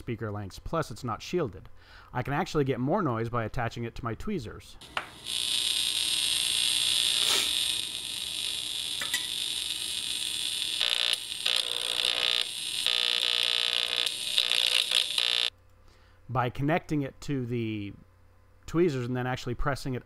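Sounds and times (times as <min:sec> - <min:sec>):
mains hum: 0:00.0 - 0:20.0
speaker buzzing loudly: 0:04.8 - 0:15.5.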